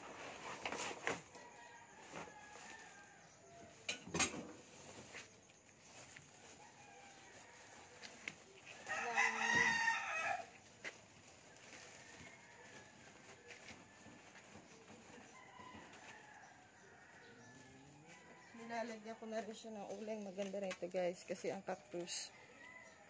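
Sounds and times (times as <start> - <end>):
rooster crowing: 1.3 - 3.8, 6.5 - 10.6, 11.6 - 19.4, 22.2 - 23.0.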